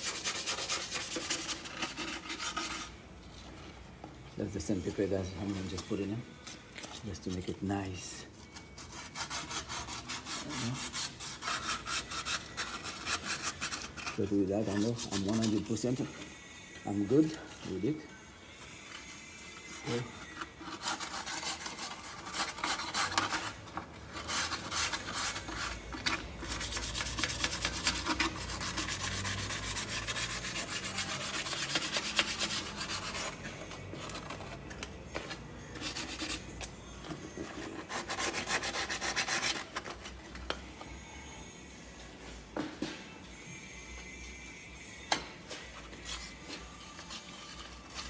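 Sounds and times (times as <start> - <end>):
abrasive paper scraping metal: 0.0 - 3.0, 5.4 - 16.0, 18.6 - 40.2.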